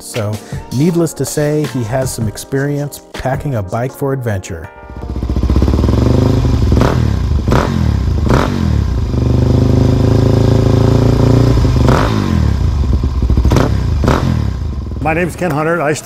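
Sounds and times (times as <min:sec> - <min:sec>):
motorcycle engine revving: 0:04.9 - 0:15.6.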